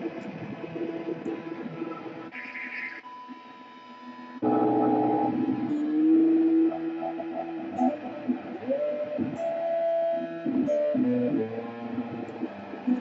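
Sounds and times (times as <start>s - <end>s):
electric guitar with effects: 4.4s - 13.0s.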